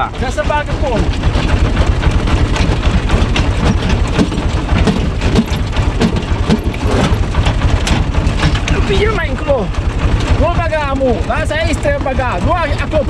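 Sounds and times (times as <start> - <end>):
tractor diesel engine running: 0.0 - 13.0
wood splitting cracks: 0.8 - 10.8.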